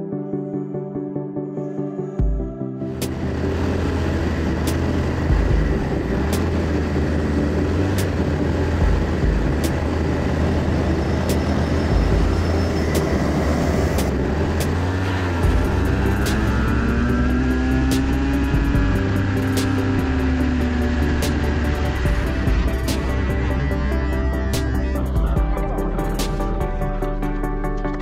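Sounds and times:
go-kart engine running: 3.0s - 25.4s.

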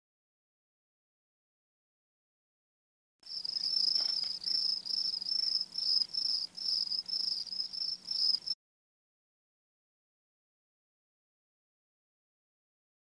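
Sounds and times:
crickets chirping: 3.3s - 8.6s.

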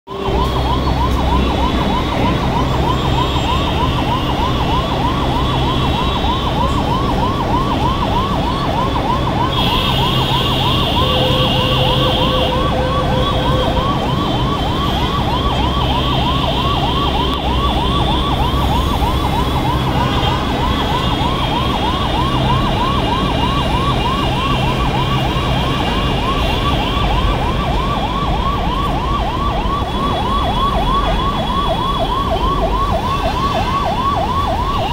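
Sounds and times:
heavy road traffic rumble: 0.0s - 34.9s
emergency siren yelping: 0.1s - 34.9s.

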